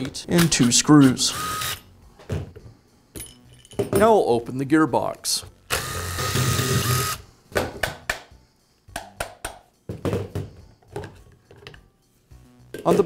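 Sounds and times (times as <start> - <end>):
cordless driver: 0.4 - 1.8, 5.7 - 7.2.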